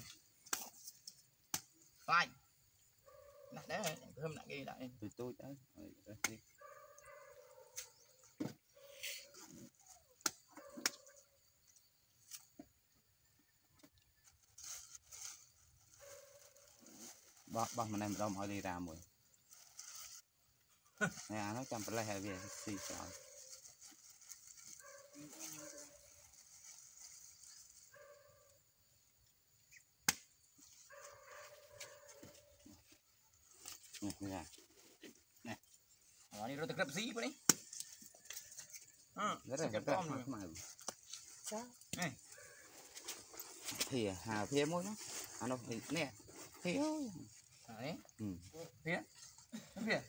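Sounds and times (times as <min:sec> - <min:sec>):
sharp snap: 0:30.0 - 0:30.3.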